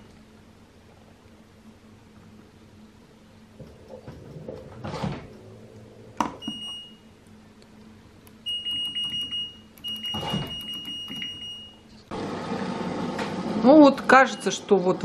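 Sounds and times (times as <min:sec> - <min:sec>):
control panel beeps: 0:06.4 - 0:07.0, 0:08.5 - 0:11.8.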